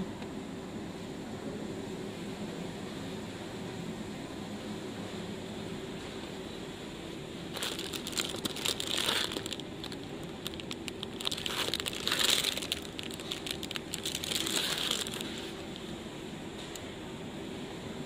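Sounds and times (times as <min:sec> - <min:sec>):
steady low hum: 0:00.0 - 0:18.0
plastic packaging crinkling: 0:07.5 - 0:15.9.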